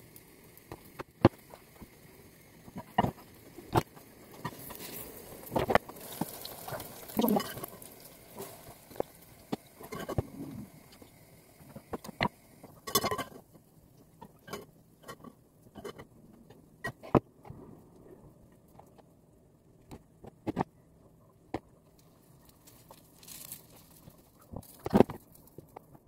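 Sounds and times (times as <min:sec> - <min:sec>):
kitchen utensils clattering: 0:09.8 - 0:10.4, 0:12.8 - 0:13.4
spatula scraping frying pan: 0:09.8 - 0:10.7.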